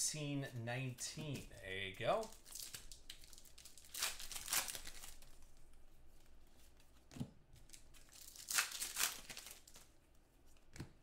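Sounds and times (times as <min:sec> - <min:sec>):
wrapper tearing and crinkling: 0:02.2 - 0:05.5, 0:07.7 - 0:09.9.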